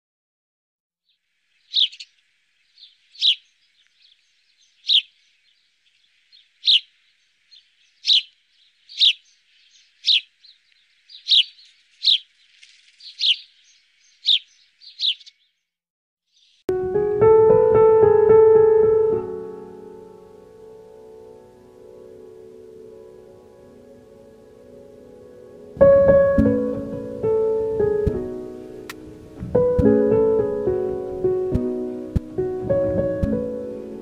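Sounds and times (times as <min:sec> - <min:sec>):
sparrow chirping: 0:01.0 - 0:15.7, 0:16.3 - 0:16.7.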